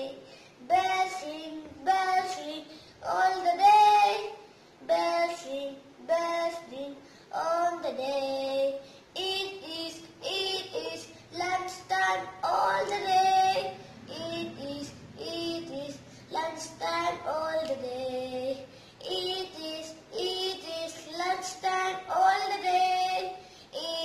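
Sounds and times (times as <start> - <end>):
boy singing unaccompanied: 0.0 - 24.0.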